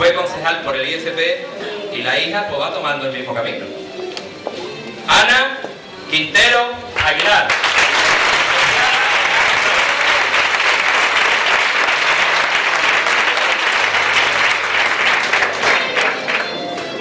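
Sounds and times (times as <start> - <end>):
audience applauding: 7.0 - 17.0.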